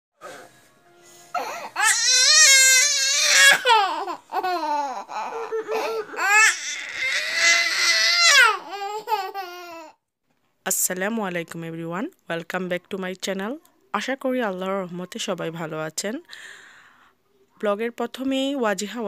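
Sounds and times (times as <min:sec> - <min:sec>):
toddler crying: 0:01.3 - 0:10.0.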